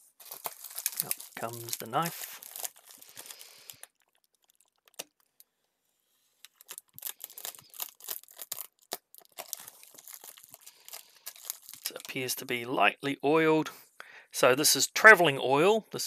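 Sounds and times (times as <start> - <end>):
bubble wrap crinkling and tearing: 0.0 - 5.5, 6.4 - 12.5.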